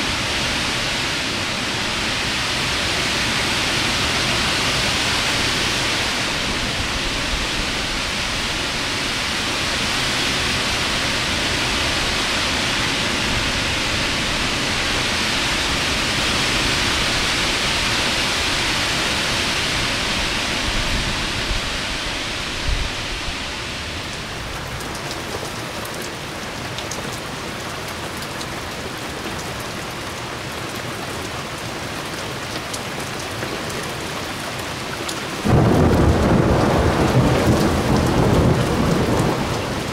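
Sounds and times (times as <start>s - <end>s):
heavy rain pouring: 0.0s - 39.9s
raindrops spattering close by: 23.5s - 39.9s.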